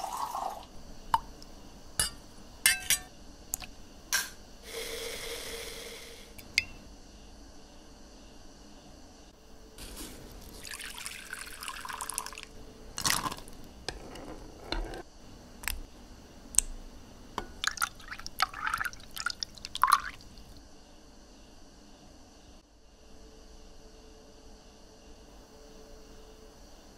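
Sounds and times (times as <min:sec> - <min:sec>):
liquid pouring: 0:00.0 - 0:00.7, 0:09.8 - 0:13.6, 0:17.4 - 0:20.6
ladle stirring syrup: 0:09.8 - 0:12.4, 0:17.4 - 0:20.5.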